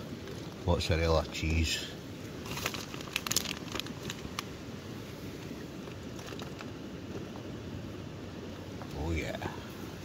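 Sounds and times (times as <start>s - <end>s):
steady background hiss: 0.0s - 10.0s
tin foil crinkling: 2.4s - 4.5s.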